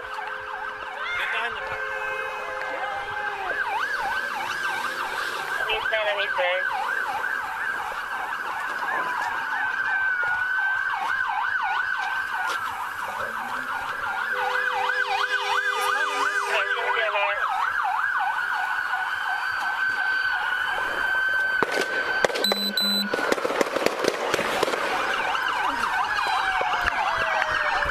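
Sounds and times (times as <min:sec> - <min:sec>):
police siren wail: 0:00.0 - 0:27.9
police siren yelp: 0:00.0 - 0:27.9
short electronic beep: 0:22.4 - 0:23.1.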